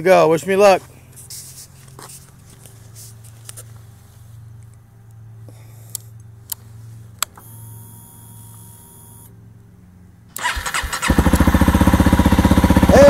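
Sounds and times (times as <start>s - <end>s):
electric starter cranking: 10.3s - 13.0s
motorcycle engine running: 10.4s - 13.0s.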